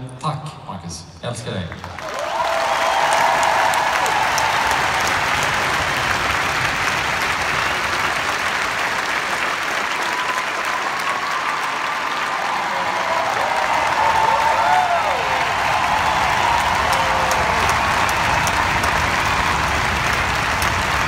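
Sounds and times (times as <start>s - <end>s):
crowd applauding: 1.7s - 21.0s.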